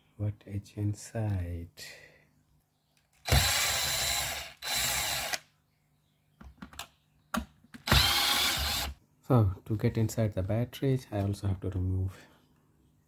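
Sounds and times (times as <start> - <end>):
electric screwdriver running: 3.2 - 5.4, 7.8 - 9.0.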